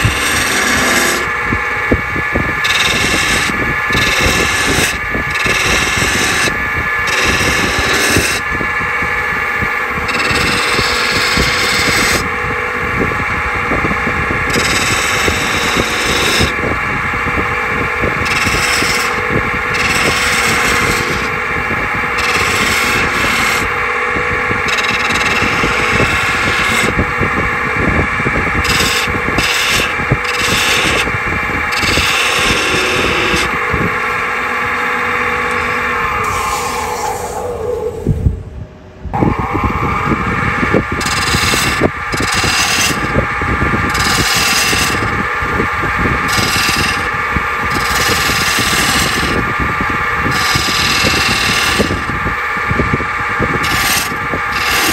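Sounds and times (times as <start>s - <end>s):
turning tool scraping wood: 0.0s - 1.4s, 2.6s - 8.5s, 10.0s - 12.3s, 14.5s - 16.7s, 18.2s - 21.4s, 22.1s - 23.8s, 24.6s - 27.0s, 28.5s - 37.4s, 41.0s - 43.2s, 43.8s - 45.2s, 46.2s - 49.5s, 50.2s - 52.2s, 53.4s - 54.9s
wood lathe humming: 0.0s - 38.0s, 40.8s - 54.9s.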